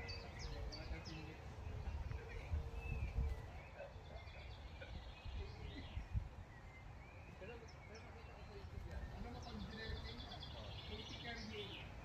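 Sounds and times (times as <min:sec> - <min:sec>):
wind rumble on microphone: 0:00.0 - 0:07.1
birds chirping and singing: 0:00.0 - 0:12.0.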